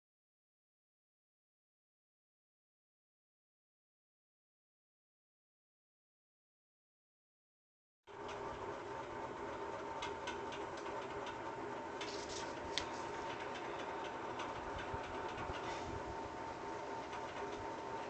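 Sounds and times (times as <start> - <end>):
paper handling: 12.0 - 13.8.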